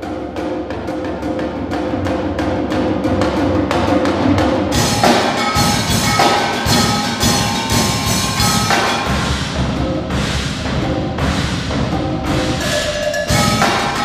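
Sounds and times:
drums playing fast: 0.0 - 14.0
cymbal ringing: 4.7 - 9.6, 12.2 - 14.0.

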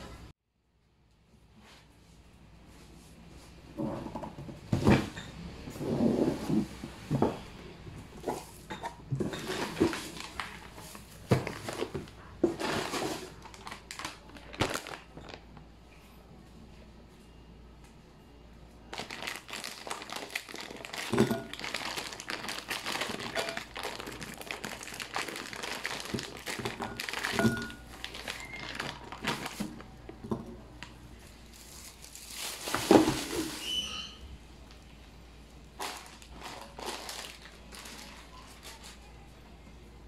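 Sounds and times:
plastic bag crinkling: 9.2 - 15.6, 18.9 - 30.1, 30.8 - 34.2, 35.7 - 39.1.

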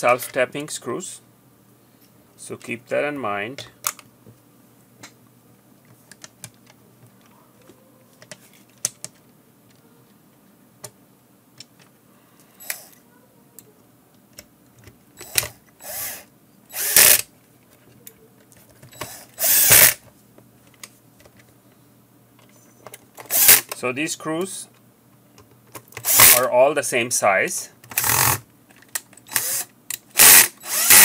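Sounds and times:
clicks and taps of handling: 5.8 - 9.8
cordless drill running: 12.6 - 13.0, 15.2 - 17.2, 19.0 - 20.0, 23.3 - 23.7, 26.0 - 26.4, 28.0 - 28.4, 29.3 - 31.0.

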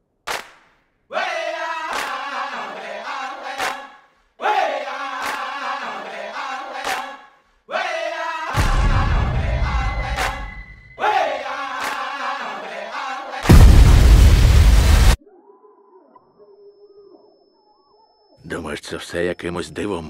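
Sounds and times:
group of voices chanting: 1.1 - 13.5.

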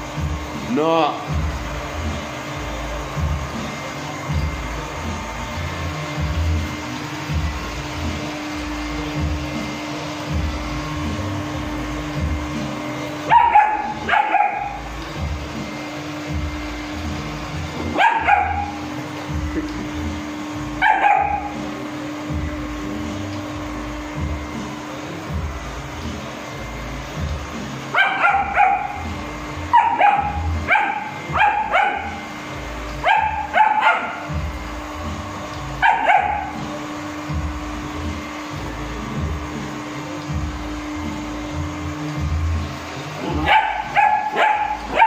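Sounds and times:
robot vacuum humming: 0.0 - 45.0
puppy barking: 13.2 - 14.9, 17.9 - 18.8, 20.8 - 21.6, 27.9 - 29.1, 29.7 - 32.3, 33.0 - 34.4, 35.8 - 36.6, 43.2 - 45.0.

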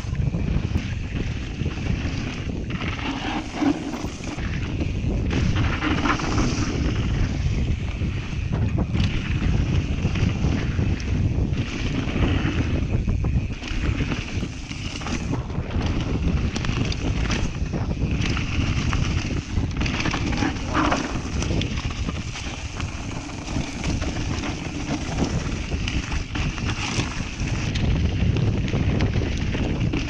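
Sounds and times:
bike clicks and rattles: 0.0 - 30.0
wind buffeting microphone: 0.0 - 30.0
tyres rolling over snow: 1.6 - 4.7, 16.6 - 28.1.

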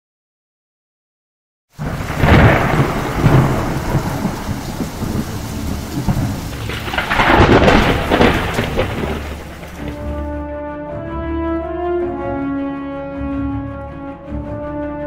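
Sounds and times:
rain: 1.7 - 10.4
thunder: 1.8 - 10.3.

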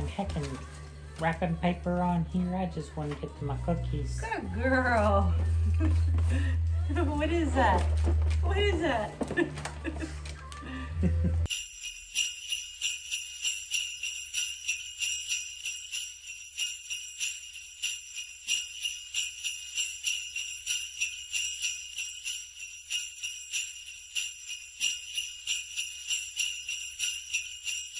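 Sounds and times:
jingle bells shaken: 0.0 - 27.9.

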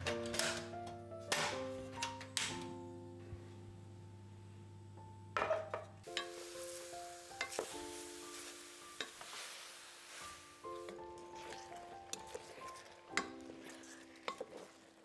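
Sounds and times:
background music: 0.0 - 15.0
steady hiss of cooking: 6.0 - 15.0.

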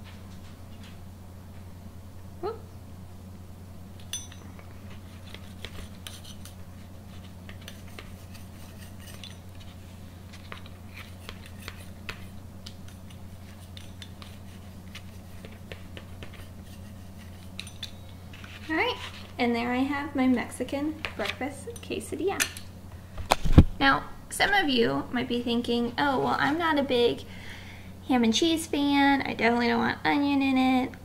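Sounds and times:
pizza cutter scraping and clicking: 5.2 - 6.6, 7.5 - 9.6, 10.5 - 17.8.

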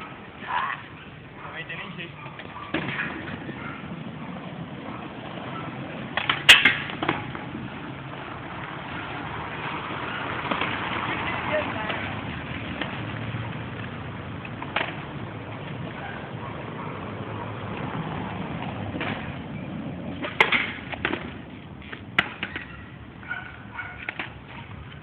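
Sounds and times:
skateboard wheels rolling on pavement: 0.0 - 25.0
skateboard clacking over cracks: 5.3 - 7.5, 9.1 - 15.9, 20.1 - 22.8, 23.9 - 25.0.

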